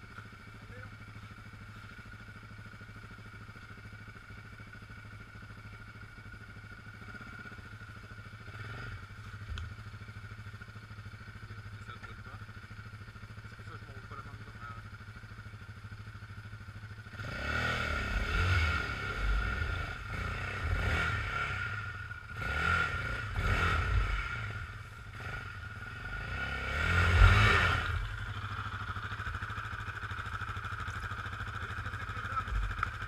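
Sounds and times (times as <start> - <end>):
quad engine idling: 0.0 - 33.0
quad engine revving hard: 17.1 - 28.0.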